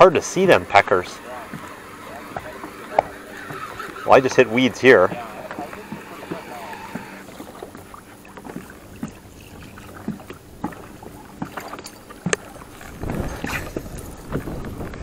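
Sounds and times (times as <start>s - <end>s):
water lapping at boat hull: 0.0s - 15.0s.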